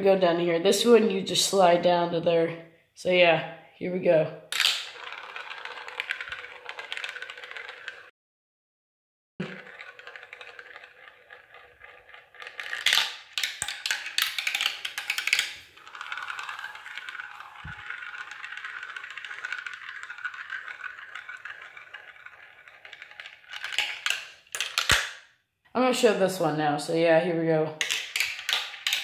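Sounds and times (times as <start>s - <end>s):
marble clattering through tubes: 4.5s - 8.1s, 9.4s - 25.3s, 27.8s - 29.0s
marble rolling in plastic funnel: 4.5s - 8.1s, 9.4s - 25.2s, 27.8s - 29.0s.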